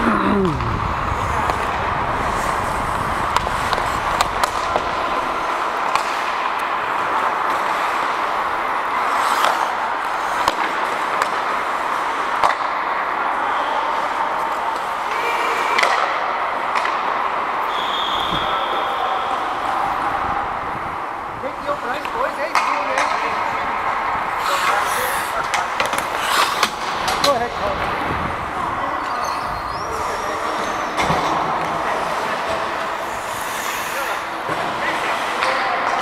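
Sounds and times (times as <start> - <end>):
hockey sticks and puck clacking: 0.6 - 13.4, 14.0 - 18.8, 21.6 - 28.0, 29.0 - 36.0
skate blades hissing on ice: 9.0 - 11.1, 24.4 - 25.4, 26.0 - 26.8, 33.0 - 34.4.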